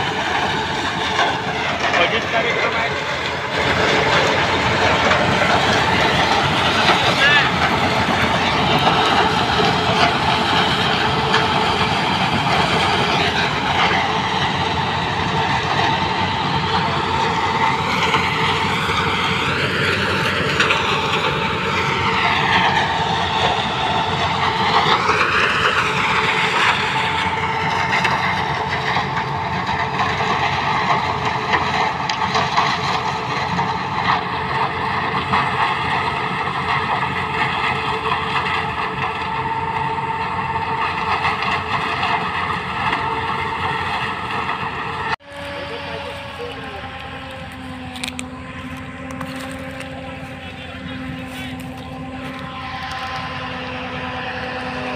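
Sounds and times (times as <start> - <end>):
sugarcane harvester running: 0.0 - 54.9
tractor engine: 0.0 - 54.9.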